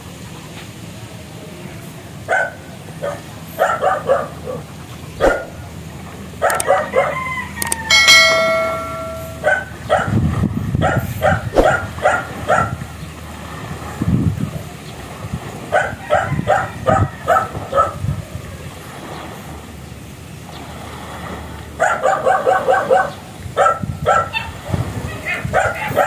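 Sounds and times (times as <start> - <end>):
dog barking: 2.3 - 5.6, 6.4 - 7.2, 9.4 - 10.2, 10.8 - 12.8, 15.7 - 18.0, 21.8 - 24.6, 25.2 - 26.0
bell-like ring: 7.9 - 9.7.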